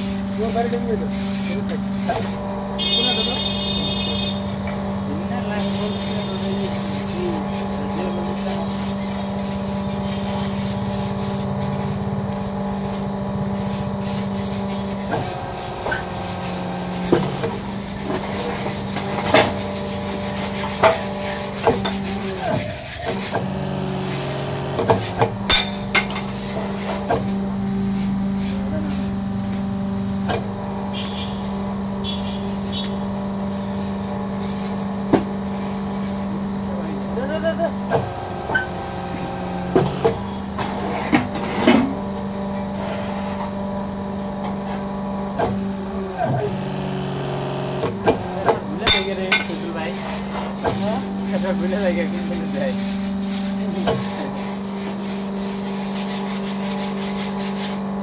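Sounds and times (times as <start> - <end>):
electric motor humming: 0.0 - 44.0
sharp metallic clanks: 25.5 - 26.2, 48.9 - 49.6.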